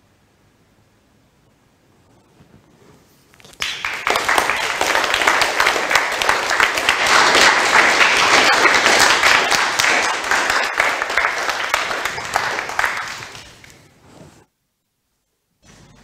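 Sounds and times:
audience applauding: 0:03.5 - 0:13.8.

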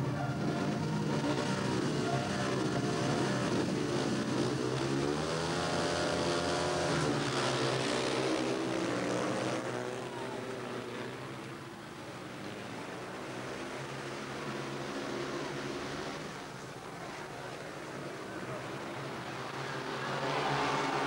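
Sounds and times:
motorcycle engines revving: 0:00.0 - 0:21.0.

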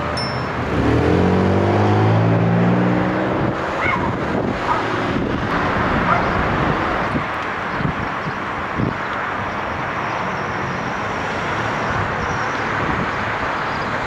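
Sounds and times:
car engine pulling away: 0:00.0 - 0:07.5
tyre and road noise: 0:00.0 - 0:14.0.

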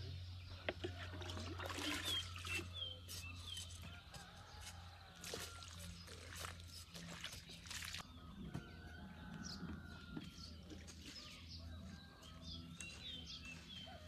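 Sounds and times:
water poured from ladle: 0:00.8 - 0:02.7
small birds chirping: 0:01.8 - 0:14.0.

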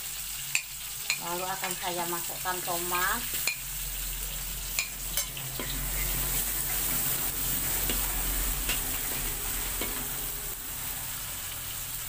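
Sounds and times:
food sizzling in hot oil: 0:00.0 - 0:12.0
spatula scraping a metal wok: 0:03.2 - 0:11.9.

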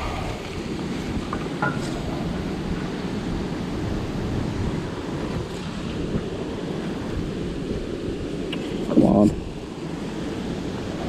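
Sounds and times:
churning white water: 0:00.0 - 0:11.0
wind rumbling on microphone: 0:00.0 - 0:11.0.

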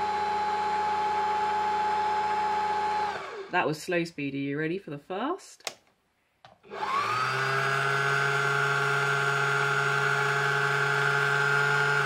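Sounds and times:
sewing machine motor running fast: 0:06.7 - 0:12.0.

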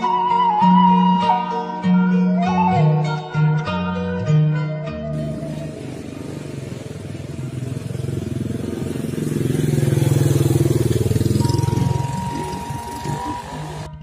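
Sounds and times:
motor scooter passing by: 0:05.1 - 0:14.0.

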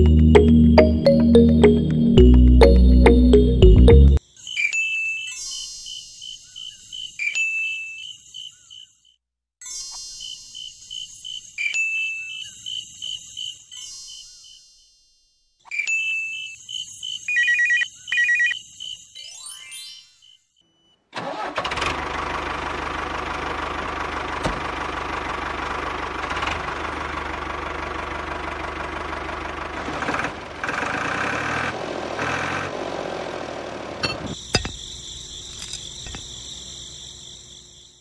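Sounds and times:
chiming dings: 0:00.0 - 0:08.2, 0:11.5 - 0:12.8, 0:15.7 - 0:18.6
engine low rumble: 0:21.7 - 0:37.6.

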